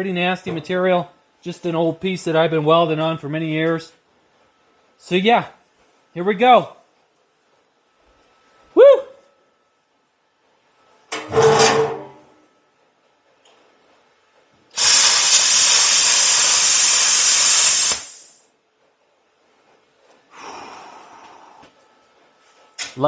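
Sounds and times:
plasma torch arc hissing: 0:14.8 - 0:18.4.

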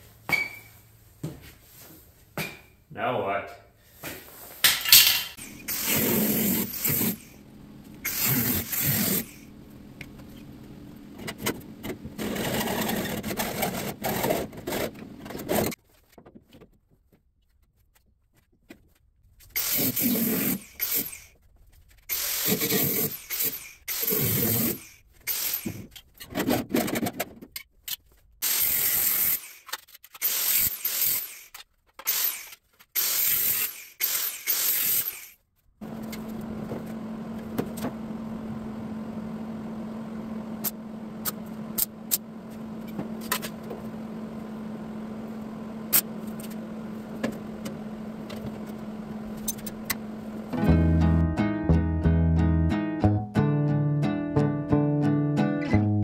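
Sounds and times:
angle grinder cutting steel: 0:05.0 - 0:09.5, 0:22.2 - 0:25.8, 0:28.4 - 0:31.5.

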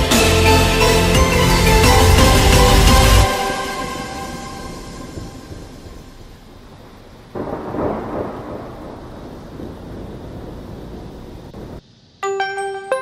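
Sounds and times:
music chord: 0:00.0 - 0:06.6, 0:12.2 - 0:13.0.

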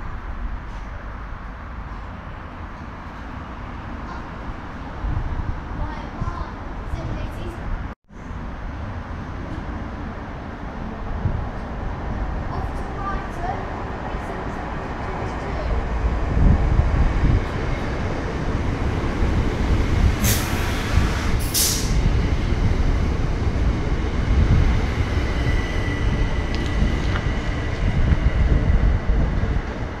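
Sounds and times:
train rumbling: 0:00.0 - 0:30.0
short hisses: 0:21.6 - 0:22.0.

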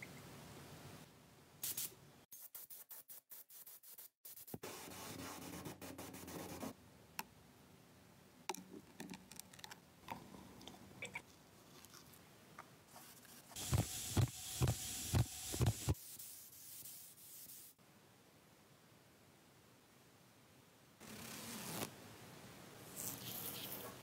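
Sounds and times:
paint spray gun hissing: 0:13.6 - 0:16.0.

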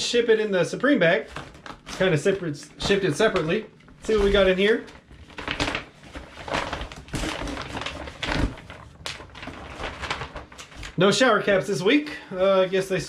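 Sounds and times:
plastic bag crinkling: 0:01.0 - 0:11.2.

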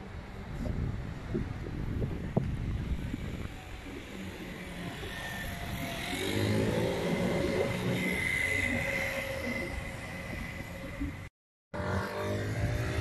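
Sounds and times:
vehicle accelerating past: 0:04.7 - 0:10.1, 0:11.8 - 0:13.0.

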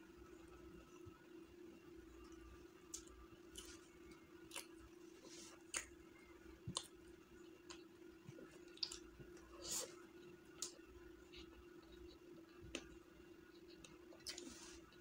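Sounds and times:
faint hum: 0:00.0 - 0:15.0
chewing: 0:02.4 - 0:06.0, 0:06.6 - 0:09.2, 0:09.8 - 0:15.0.

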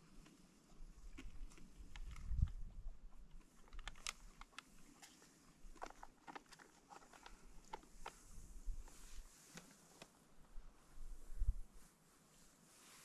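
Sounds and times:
chewing: 0:00.0 - 0:08.2
spoons clicking and scraping: 0:03.5 - 0:08.2.

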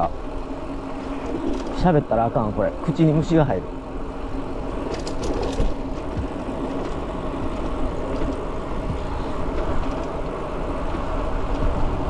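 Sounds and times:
bike tyres droning on road: 0:00.0 - 0:12.0
wind rushing over microphone: 0:03.6 - 0:12.0.

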